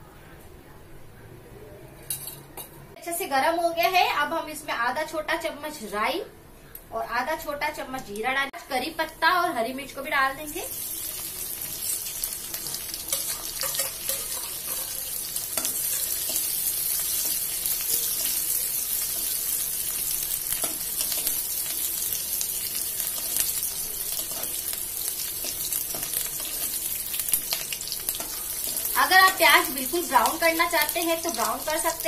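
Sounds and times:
food sizzling in hot oil: 0:08.9 - 0:32.0
metal spoon scraping pan: 0:13.1 - 0:18.5.

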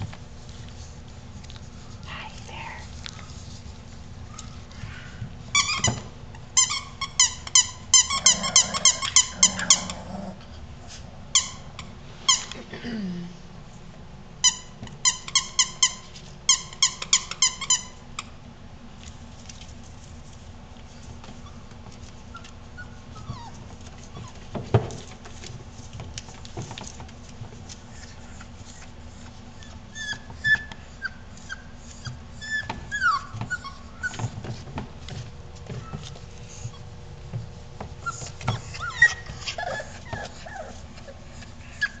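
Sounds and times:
puppies whining: 0:05.4 - 0:12.7, 0:20.9 - 0:25.4, 0:27.6 - 0:37.2, 0:37.8 - 0:42.0
puppies squeaking: 0:05.5 - 0:10.1, 0:11.3 - 0:12.6, 0:14.4 - 0:18.1, 0:22.3 - 0:24.5, 0:27.9 - 0:34.6, 0:35.6 - 0:36.9, 0:38.0 - 0:42.0.

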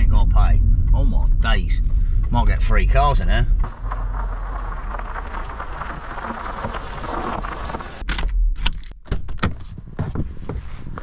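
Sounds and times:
steady rushing noise: 0:00.0 - 0:08.0.

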